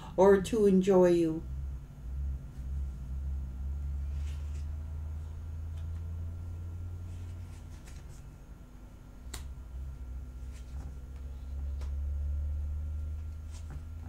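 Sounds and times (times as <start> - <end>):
low hum: 0.0 - 14.0
cards handled on table: 4.0 - 4.8, 7.0 - 8.3, 10.4 - 12.0, 13.2 - 13.9
sharp card snaps: 9.2 - 9.6.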